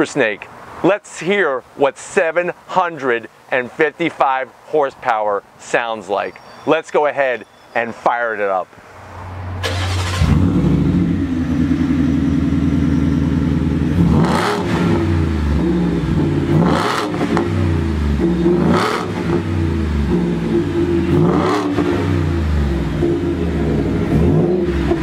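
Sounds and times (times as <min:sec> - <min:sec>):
engine idling and revving: 0:09.2 - 0:25.0.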